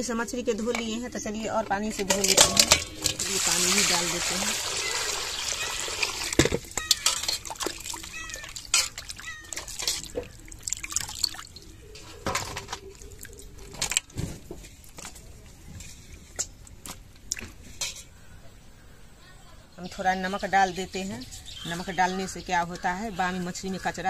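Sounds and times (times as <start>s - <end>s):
water splashing in steel bowl: 2.0s - 15.2s
water pouring: 2.0s - 17.9s.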